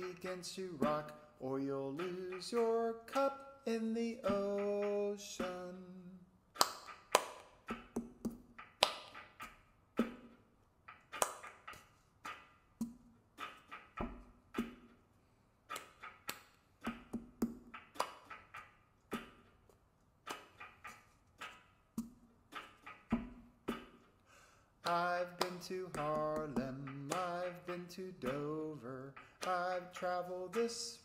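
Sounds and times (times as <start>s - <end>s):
hand claps: 0.0s - 1.2s, 2.0s - 3.5s, 6.6s - 14.9s, 15.7s - 19.5s, 20.3s - 24.1s, 24.8s - 31.0s.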